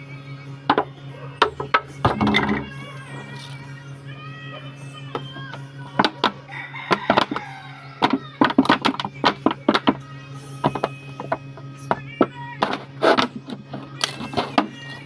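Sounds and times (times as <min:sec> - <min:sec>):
chickens calling: 0:05.4 - 0:08.8.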